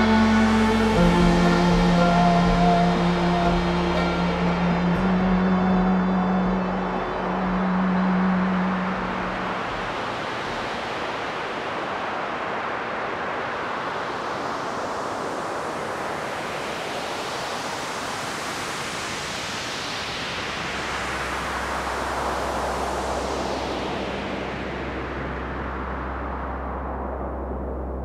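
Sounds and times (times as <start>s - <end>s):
low hum: 0.0s - 11.9s
hissing ambient music: 0.0s - 28.0s.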